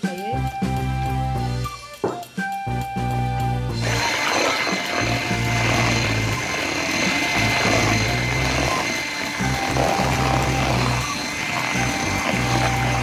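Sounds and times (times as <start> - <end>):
background music: 0.0 - 13.0
electric hand mixer whining: 3.7 - 13.0
beaters whisking batter: 3.8 - 13.0.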